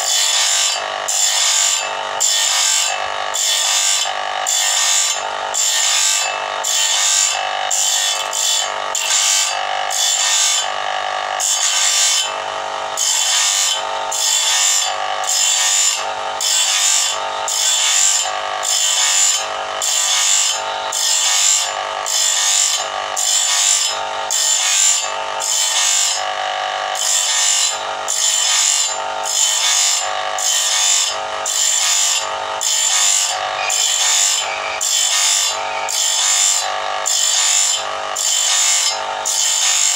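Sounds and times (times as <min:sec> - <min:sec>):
motor running hum: 0:00.0 - 0:17.5, 0:28.8 - 0:39.9
grinding wheel on steel teeth: 0:00.0 - 0:39.9.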